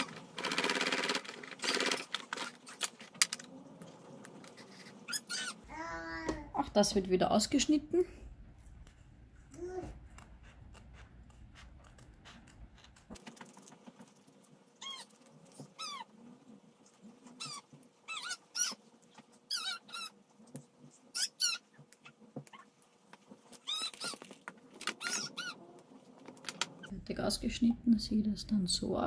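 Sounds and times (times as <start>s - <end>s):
high-pitched squeaky calls: 5.1s - 5.6s, 14.8s - 15.1s, 17.3s - 18.9s, 19.5s - 20.2s, 21.1s - 22.7s, 23.6s - 24.3s, 24.9s - 25.7s.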